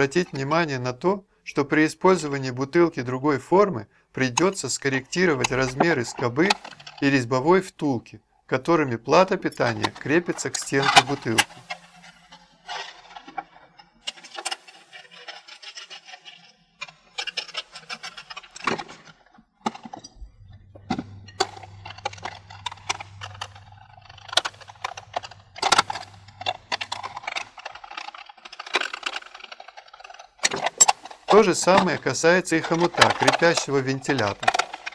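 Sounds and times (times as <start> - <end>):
thin plastic crackling: 9.1 - 20.1, 20.7 - 34.9
low steady hum: 20.1 - 28.2
screwdriver and metal clicks: 20.8 - 31.9, 32.8 - 34.9.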